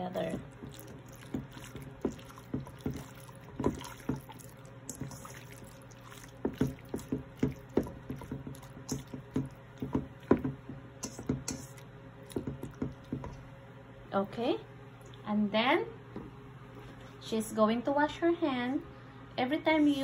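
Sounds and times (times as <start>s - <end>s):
hands squelching meat: 0.4s - 13.1s.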